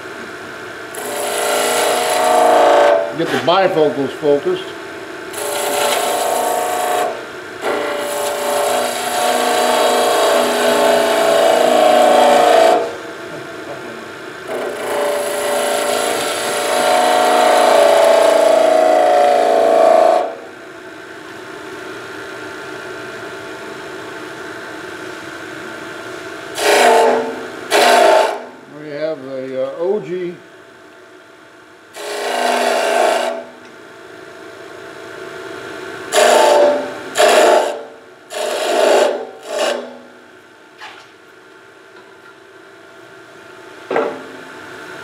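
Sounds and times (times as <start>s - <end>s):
chisel scraping spinning wood: 0.9s - 3.6s, 5.3s - 13.0s, 14.5s - 20.3s, 26.6s - 28.5s, 32.0s - 33.5s, 36.1s - 40.1s
lathe running: 0.9s - 13.1s, 14.4s - 20.4s, 26.5s - 29.2s, 32.0s - 33.6s, 36.1s - 40.1s.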